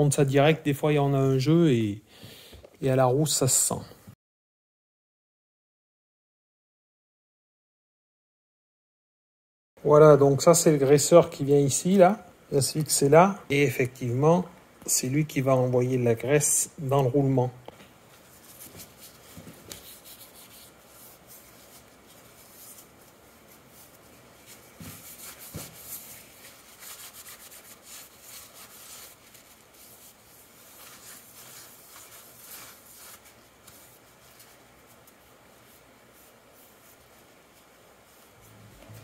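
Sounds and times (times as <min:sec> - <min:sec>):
hands rubbing and scraping parts: 0:18.1 - 0:39.0.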